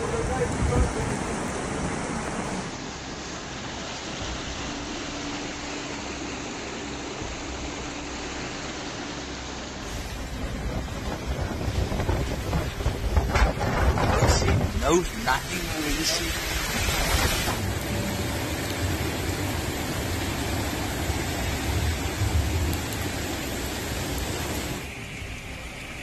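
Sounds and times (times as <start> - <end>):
floodwater rushing: 0.0 - 26.0
wind buffeting microphone: 9.9 - 15.5.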